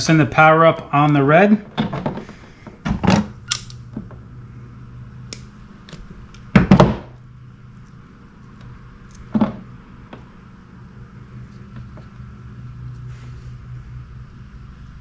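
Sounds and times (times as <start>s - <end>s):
pliers and wires clicking: 3.4s - 3.8s.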